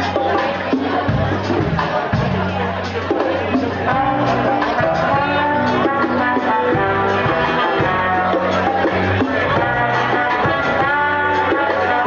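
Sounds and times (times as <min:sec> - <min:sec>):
guitar and bass: 0:00.0 - 0:12.0
hand drums and drum kit: 0:00.0 - 0:12.0
saxophone and trombone melody: 0:04.3 - 0:12.0.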